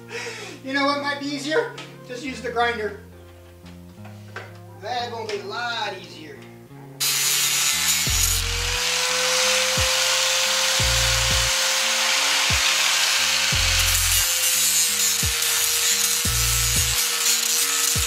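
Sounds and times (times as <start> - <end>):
angle grinder grinding metal: 7.0 - 18.0.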